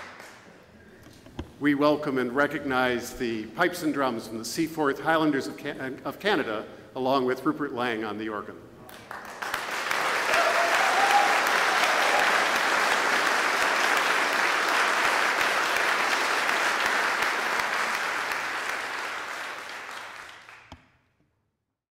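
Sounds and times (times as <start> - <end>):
audience applauding: 0.0 - 0.5, 8.9 - 20.8.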